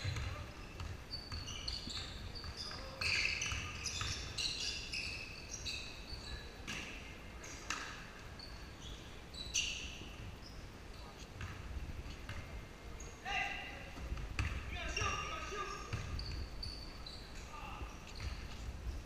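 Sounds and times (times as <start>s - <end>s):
basketball bouncing: 0.0s - 4.3s, 11.4s - 11.7s, 14.1s - 15.2s, 15.9s - 16.5s
sneakers squeaking on gym floor: 0.0s - 13.3s, 14.0s - 19.0s.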